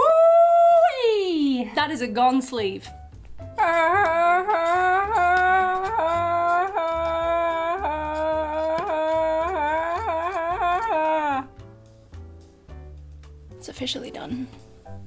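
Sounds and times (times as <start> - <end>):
woman humming: 0.0 - 1.2, 3.6 - 11.6
soft background music: 0.1 - 15.0.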